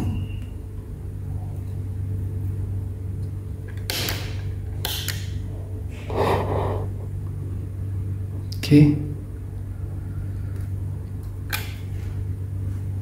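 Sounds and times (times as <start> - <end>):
low electrical hum: 0.0 - 13.0
breathy noise: 5.9 - 7.1.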